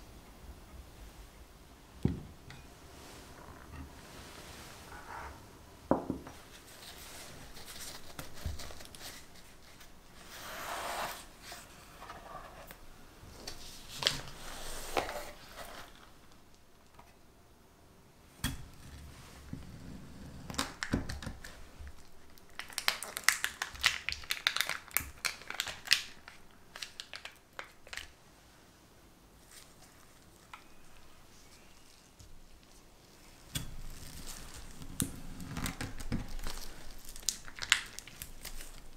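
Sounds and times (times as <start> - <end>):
paper wrapper crinkling and tearing: 6.8 - 10.3, 20.5 - 28.2, 29.5 - 38.9.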